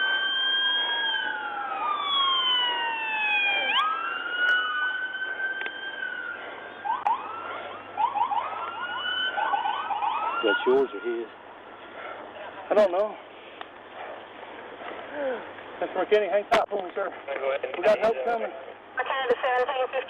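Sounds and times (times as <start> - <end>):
siren fast yelp: 0.0 - 11.3
police sirens wailing: 0.0 - 11.6.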